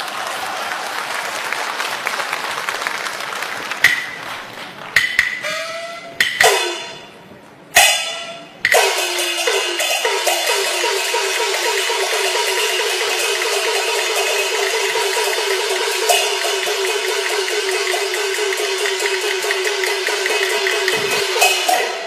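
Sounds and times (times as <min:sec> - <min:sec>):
clappers: 0:01.9 - 0:07.1
cymbal crashes: 0:05.4 - 0:22.0
gong crashes: 0:07.8 - 0:22.0.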